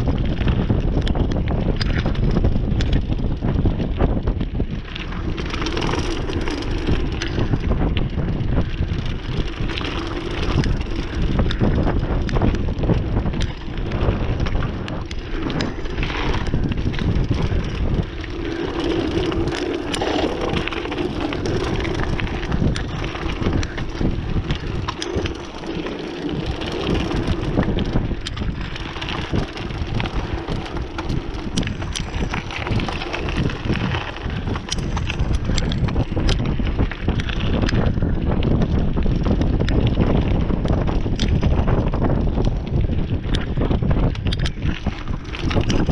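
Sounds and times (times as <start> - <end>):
bike rattling over bumps: 0.0 - 45.9
bike tyres crunching on dirt: 0.0 - 45.9
wind buffeting microphone: 0.0 - 45.9.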